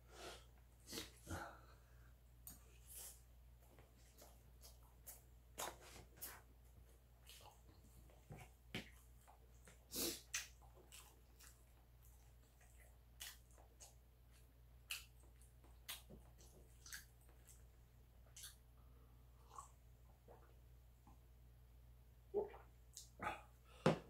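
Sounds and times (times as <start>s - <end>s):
chewing sounds: 3.8s - 18.6s.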